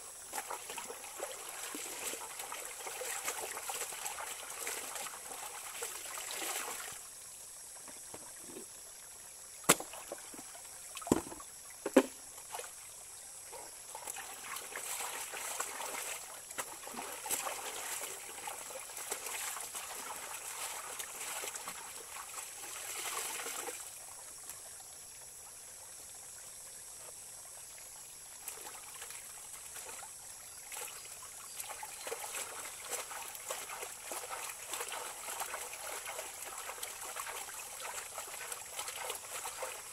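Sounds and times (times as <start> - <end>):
laundry splashing in water: 0.0 - 7.0, 14.1 - 23.8, 31.6 - 39.9
stream trickling: 0.0 - 39.9.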